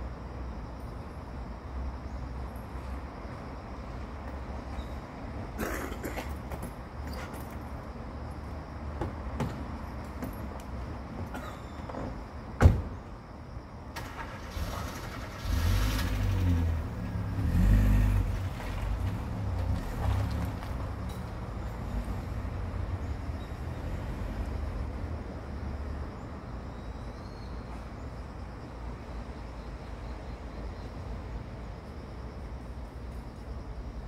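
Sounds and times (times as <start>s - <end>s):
motor vehicle passing: 14.2s - 21.0s.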